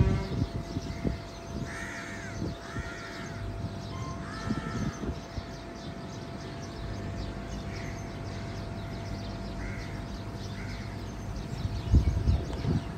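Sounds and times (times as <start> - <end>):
low background rumble: 0.0 - 12.9
small birds chirping: 0.0 - 12.9
crow cawing: 0.9 - 3.5, 4.1 - 5.1, 9.6 - 11.0.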